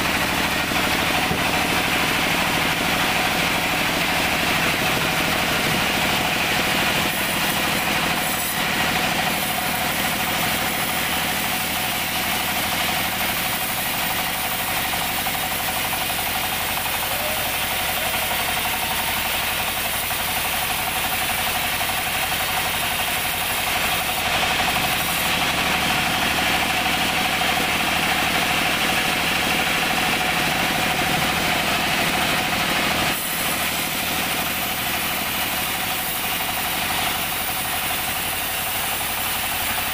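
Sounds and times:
band saw drone and whine: 0:00.0 - 0:19.2
saw blade hissing through wood: 0:04.2 - 0:27.1, 0:31.2 - 0:39.9.

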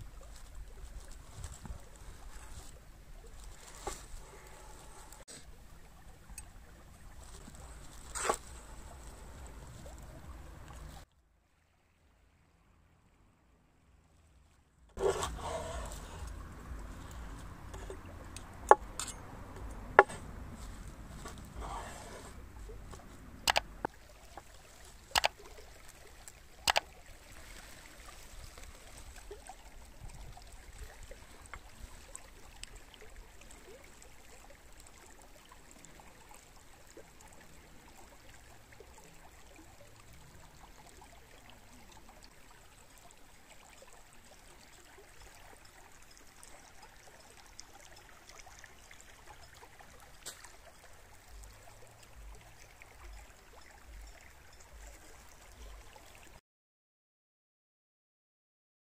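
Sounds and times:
stream trickling: 0:00.0 - 0:56.4
sharp clicks: 0:23.4 - 0:23.7, 0:25.1 - 0:25.3.

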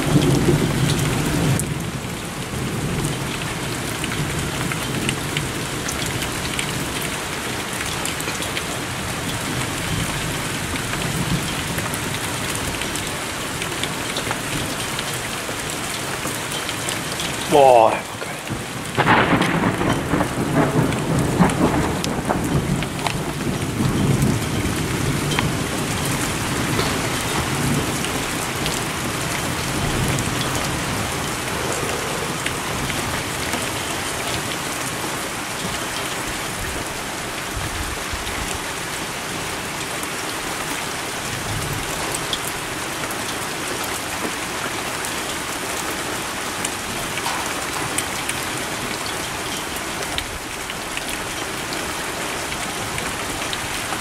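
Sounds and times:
heavy rain: 0:00.0 - 0:54.0
thunder rolling: 0:18.5 - 0:34.5.

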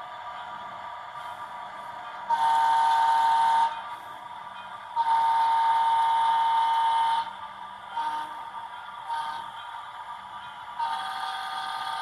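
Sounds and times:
model steam whistle blasts: 0:02.3 - 0:03.8, 0:05.0 - 0:08.4, 0:10.8 - 0:12.0.

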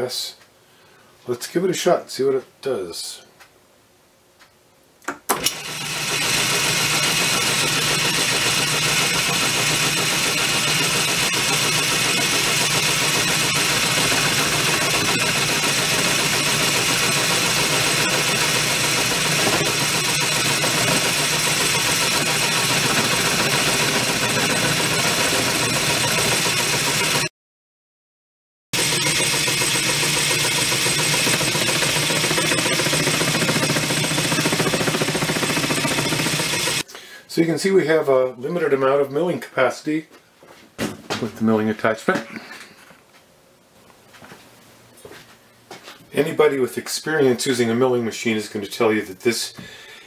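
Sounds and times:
lathe motor running: 0:05.4 - 0:27.3, 0:28.8 - 0:36.8.

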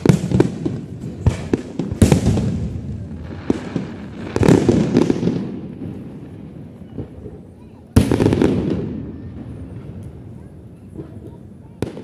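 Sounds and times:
fireworks bursting with echo: 0:00.0 - 0:12.0.

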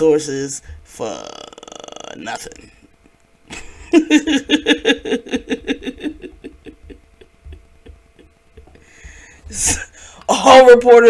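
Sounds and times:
woman laughing: 0:03.5 - 0:09.9.

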